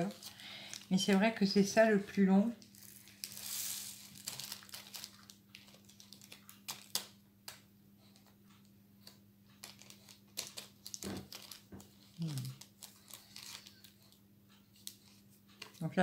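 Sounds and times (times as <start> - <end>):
plastic bag crinkling: 0.0 - 1.6, 2.5 - 7.2, 9.6 - 14.1.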